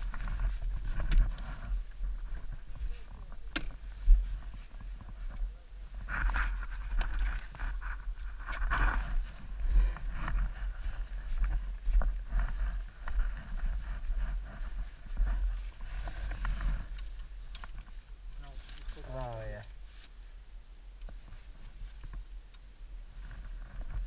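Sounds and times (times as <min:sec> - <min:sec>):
snowmobile engine rumble: 0:00.0 - 0:19.2.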